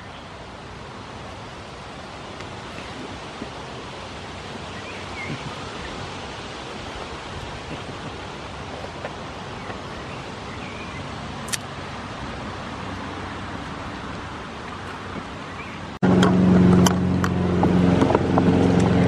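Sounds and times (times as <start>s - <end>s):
rushing outdoor background noise: 0.0s - 19.0s
sharp click: 11.5s - 11.7s.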